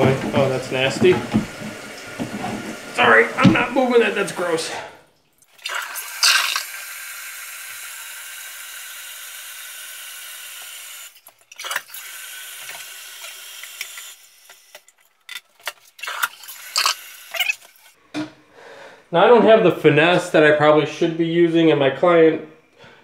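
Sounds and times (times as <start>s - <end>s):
water running in toilet tank: 0.0s - 18.0s
plastic flush parts clicking: 11.2s - 17.9s.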